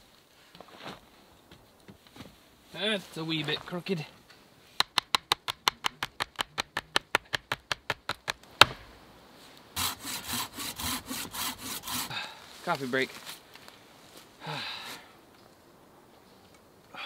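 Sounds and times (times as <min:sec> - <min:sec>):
rapid wooden ticks: 0:04.8 - 0:08.4
hand saw cutting wood: 0:09.8 - 0:12.3.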